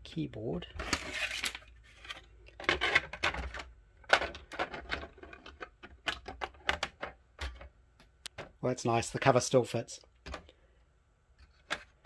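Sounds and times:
plastic cover clicking and knocking: 0:02.5 - 0:08.6.

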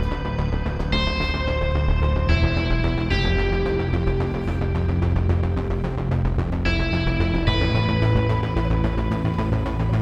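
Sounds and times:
background music of held chords: 0:00.0 - 0:10.0.

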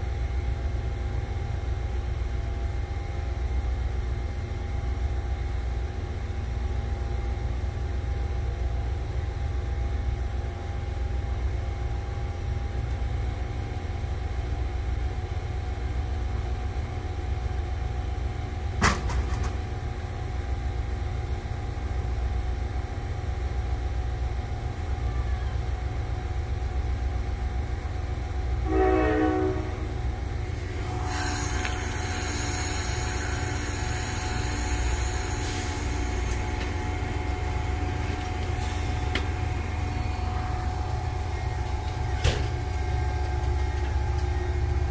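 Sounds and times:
diesel locomotive rumbling: 0:00.0 - 0:44.9
wheel and rail rushing hiss: 0:27.6 - 0:44.9
locomotive horn blast: 0:28.6 - 0:44.8.

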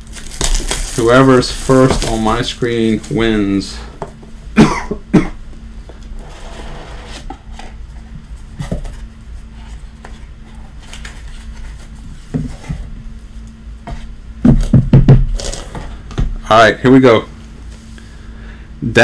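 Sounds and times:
packaging rustling: 0:00.0 - 0:03.1
faint steady hum: 0:00.0 - 0:19.0
box knocking on table: 0:14.4 - 0:15.3.

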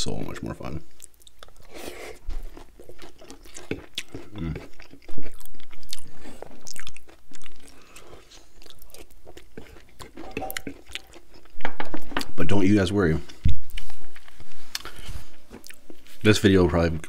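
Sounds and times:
close-miked chewing: 0:00.9 - 0:12.3, 0:13.1 - 0:17.0.

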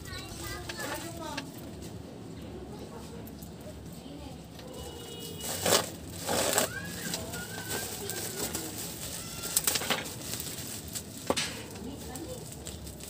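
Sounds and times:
bubble-wrap mailer crinkling: 0:05.0 - 0:13.0.

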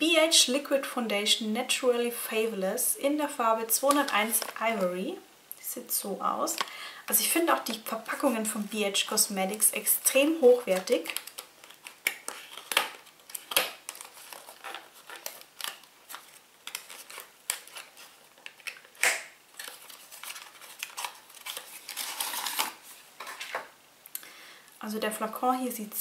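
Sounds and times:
packaging rustling: 0:03.8 - 0:04.9, 0:09.5 - 0:23.8.

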